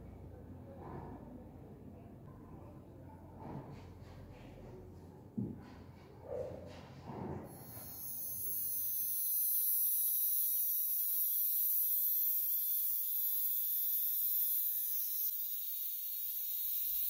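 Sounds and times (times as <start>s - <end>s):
rotary tool sanding metal: 7.5s - 17.0s.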